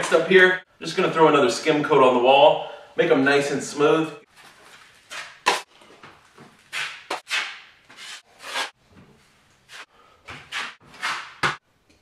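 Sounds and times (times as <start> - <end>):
taping knife scraping wall: 6.6 - 8.8, 9.7 - 11.6.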